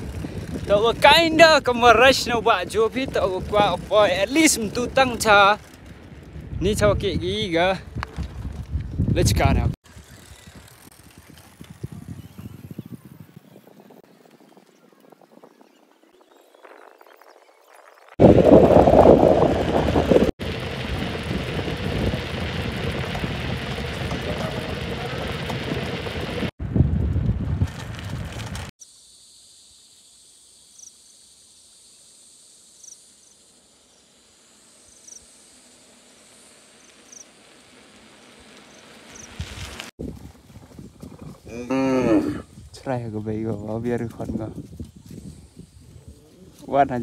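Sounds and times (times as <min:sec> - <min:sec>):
wind buffeting microphone: 0:00.0 - 0:15.8, 0:18.2 - 0:28.7, 0:39.2 - 0:47.0.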